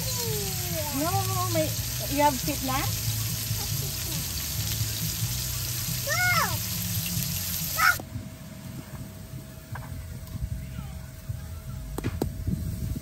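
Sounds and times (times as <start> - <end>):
steak sizzling in oil: 0.0 - 8.0.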